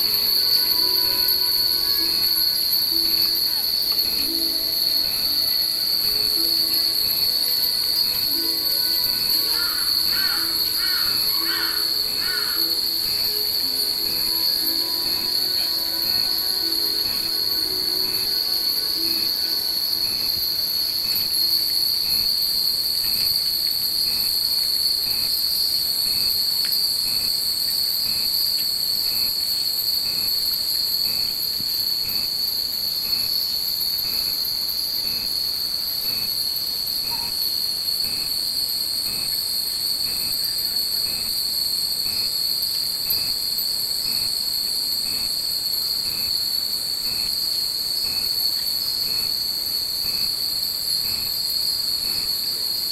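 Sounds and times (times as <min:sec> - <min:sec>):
wind chimes ringing: 0:00.0 - 0:22.0.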